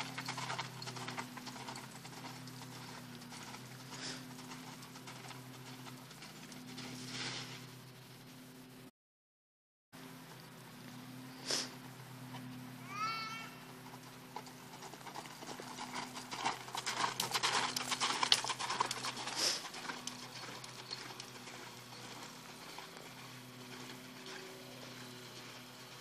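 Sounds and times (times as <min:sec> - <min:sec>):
horse hoofbeats on sand: 0:00.0 - 0:07.7, 0:13.4 - 0:26.0
low hum: 0:00.0 - 0:08.9, 0:10.0 - 0:26.0.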